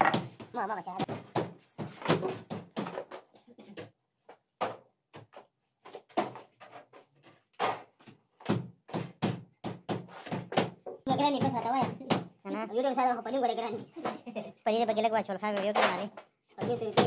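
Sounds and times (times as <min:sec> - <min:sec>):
knocks and thuds: 0:00.0 - 0:03.3, 0:07.6 - 0:12.4.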